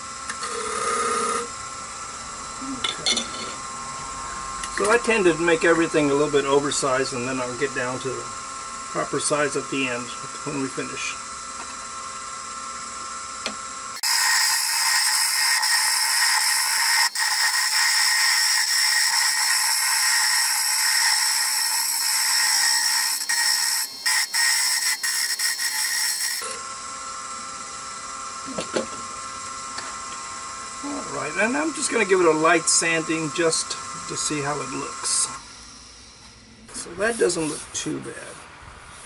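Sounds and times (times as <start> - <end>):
wood lathe motor hum: 0.0 - 35.9
turning tool hissing on wood: 14.0 - 26.5, 30.8 - 36.2.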